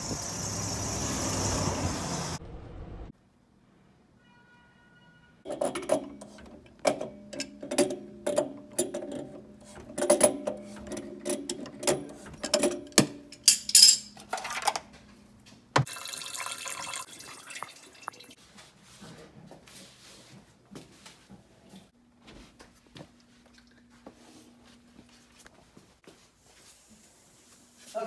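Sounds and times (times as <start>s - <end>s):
toilet flushing: 15.8s - 18.4s.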